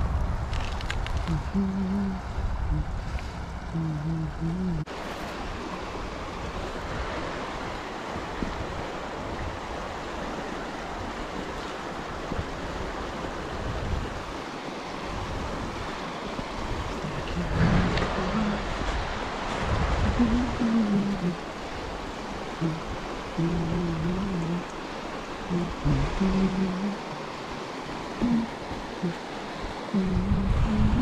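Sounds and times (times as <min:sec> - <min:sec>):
low voice-like sound: 0:01.3 - 0:03.0, 0:03.7 - 0:04.9, 0:17.0 - 0:18.8, 0:20.0 - 0:21.4, 0:22.6 - 0:22.8, 0:23.4 - 0:24.6, 0:25.5 - 0:27.0, 0:28.2 - 0:29.2, 0:30.0 - 0:31.0
river flowing over rocks: 0:04.8 - 0:30.4.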